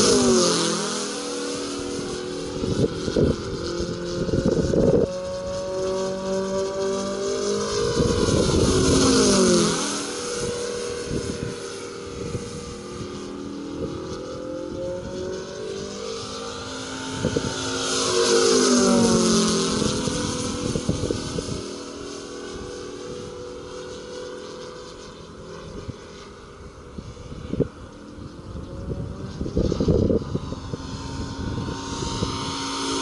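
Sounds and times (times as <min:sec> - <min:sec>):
model plane engine flying past: 0:00.0 - 0:33.0
wind rumbling on microphone: 0:00.0 - 0:33.0.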